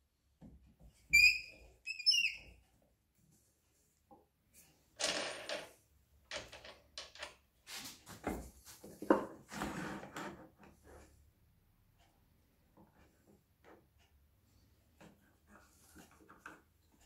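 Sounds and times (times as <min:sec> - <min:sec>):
wood scraping and knocking: 0:08.0 - 0:10.7.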